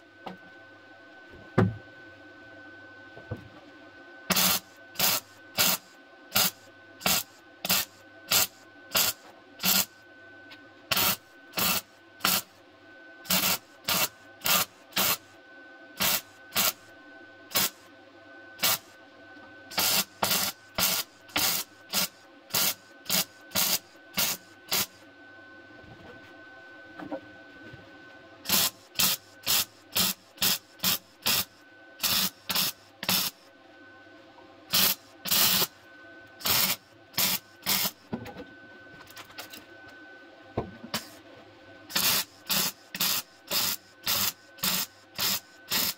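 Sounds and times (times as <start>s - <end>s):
crackling tack welds: 4.3s - 9.9s, 10.9s - 12.5s, 13.3s - 15.2s, 16.0s - 16.8s, 17.5s - 17.8s, 18.6s - 18.9s, 19.7s - 24.9s, 28.5s - 33.4s, 34.7s - 35.7s, 36.4s - 38.0s, 41.9s - 45.9s.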